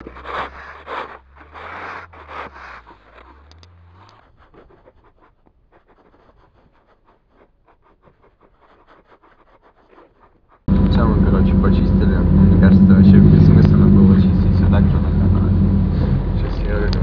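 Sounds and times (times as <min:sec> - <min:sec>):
snow shovels scraping on ice: 0:00.0 - 0:04.2
low steady hum: 0:10.7 - 0:17.0.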